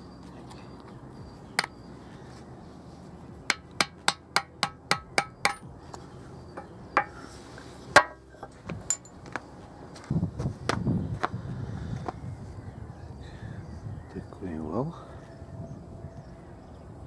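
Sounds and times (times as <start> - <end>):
hammer striking metal punch: 3.5 - 5.7, 8.0 - 8.2.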